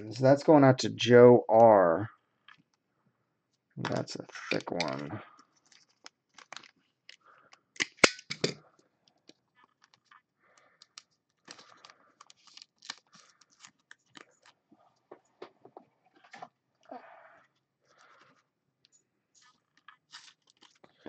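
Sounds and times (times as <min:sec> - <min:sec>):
plastic sleeves crinkling: 0:03.9 - 0:07.8, 0:09.0 - 0:15.0, 0:19.3 - 0:21.0.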